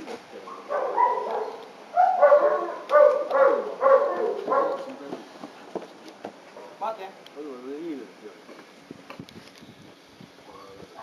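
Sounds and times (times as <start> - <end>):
dog barking: 0.5 - 4.9.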